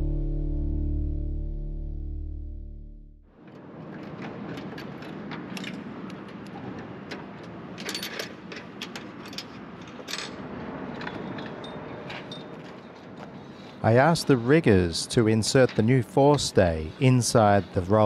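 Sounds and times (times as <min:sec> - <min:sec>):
outdoor background noise: 0:03.3 - 0:18.0
metallic clicks and clinks: 0:04.6 - 0:06.4, 0:07.8 - 0:10.4.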